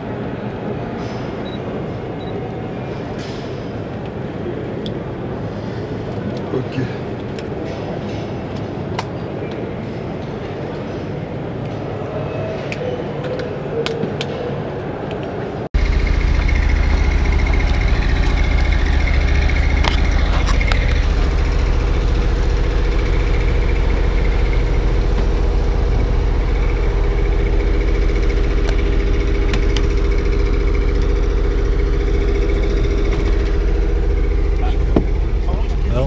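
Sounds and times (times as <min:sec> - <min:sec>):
steady whine: 0:14.6 - 0:36.0
machine hum with low rumble: 0:15.8 - 0:36.0.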